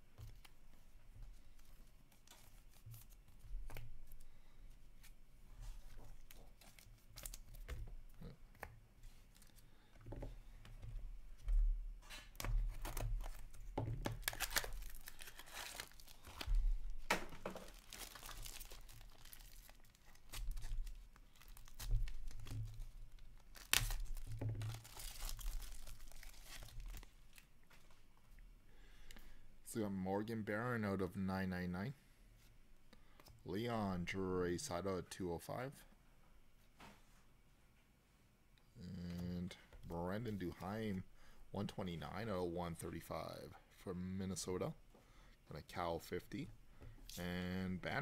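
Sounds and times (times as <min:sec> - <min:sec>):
foil wrapper tearing and crinkling: 0:14.1 - 0:16.6, 0:17.6 - 0:22.5, 0:23.2 - 0:27.0.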